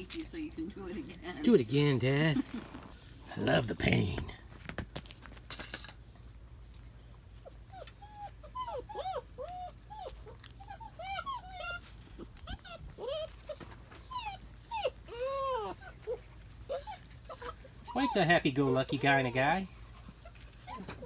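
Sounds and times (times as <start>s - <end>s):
puppies whining and yelping: 6.2s - 21.0s.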